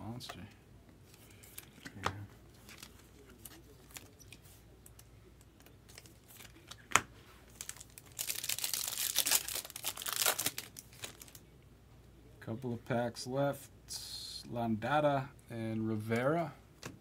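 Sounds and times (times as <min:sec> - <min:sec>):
plastic wrapper tearing and crinkling: 0:05.9 - 0:11.4.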